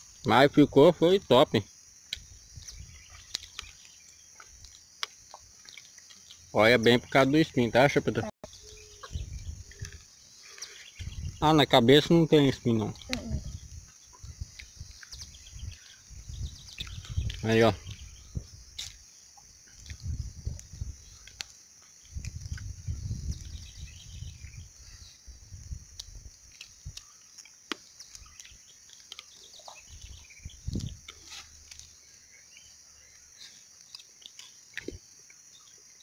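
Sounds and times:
faint bird chirps: 0:00.0 - 0:05.2, 0:06.0 - 0:25.4, 0:26.9 - 0:36.0
insect drone: 0:00.0 - 0:36.0
person chewing: 0:02.1 - 0:06.5, 0:08.5 - 0:11.1, 0:13.8 - 0:17.4, 0:25.8 - 0:32.3, 0:33.6 - 0:35.8.

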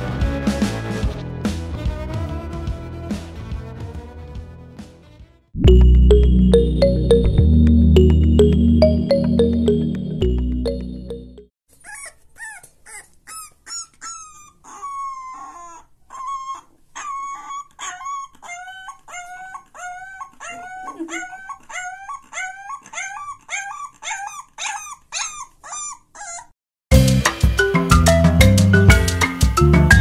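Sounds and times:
puppy howling yelps: 0:11.8 - 0:26.5.

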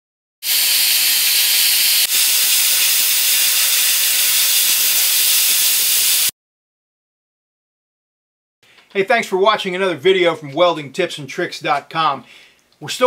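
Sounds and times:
welding arc crackling: 0:00.4 - 0:06.3.

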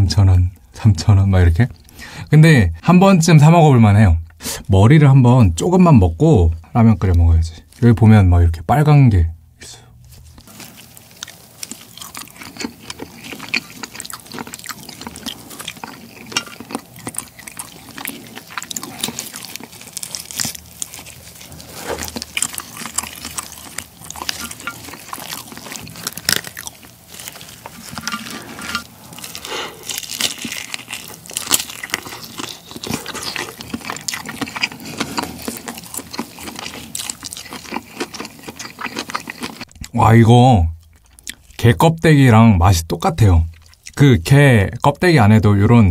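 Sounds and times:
wet chewing and crunching: 0:10.0 - 0:40.0, 0:40.7 - 0:42.0, 0:43.0 - 0:44.1
shrimp shell crackling: 0:10.2 - 0:39.9.

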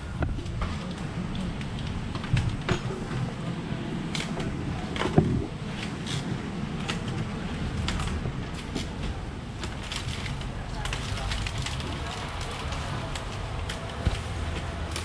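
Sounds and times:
steady low hum: 0:00.0 - 0:12.2
plastic boxes clicking and clacking: 0:04.1 - 0:15.0.

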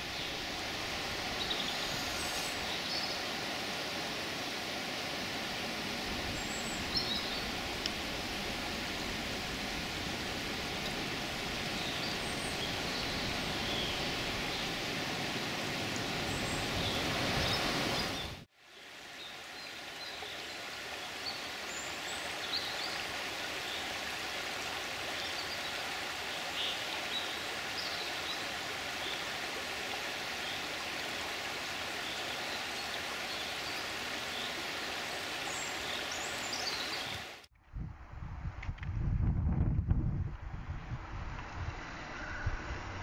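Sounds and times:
water rushing along stony shore: 0:00.0 - 0:37.5
small birds chirping: 0:10.9 - 0:14.9, 0:32.0 - 0:37.4.

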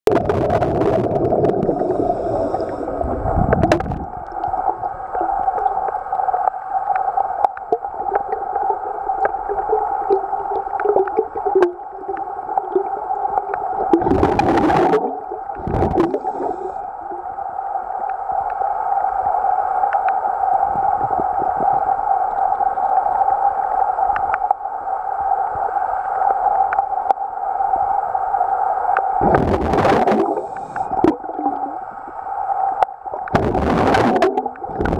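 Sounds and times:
underwater pump drone: 0:00.0 - 0:34.9
faint gurgling: 0:00.1 - 0:06.0, 0:07.6 - 0:17.2, 0:29.2 - 0:32.0, 0:33.2 - 0:34.9
water rush: 0:00.1 - 0:34.9.

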